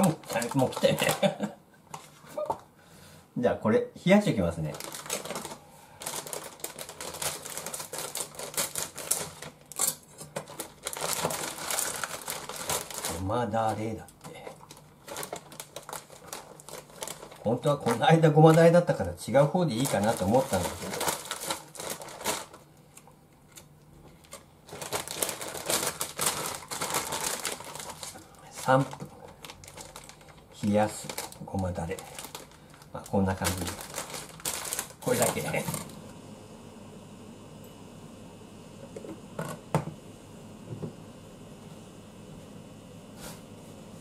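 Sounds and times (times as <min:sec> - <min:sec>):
plastic wrapper crinkling: 0:00.0 - 0:02.2, 0:04.6 - 0:36.0.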